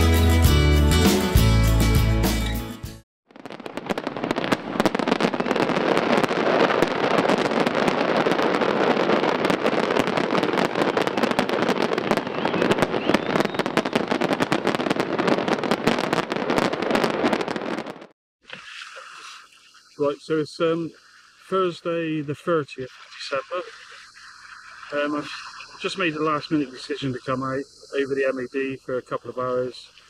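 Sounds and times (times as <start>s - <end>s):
fireworks crackling and banging: 3.3s - 18.8s, 23.0s - 28.8s.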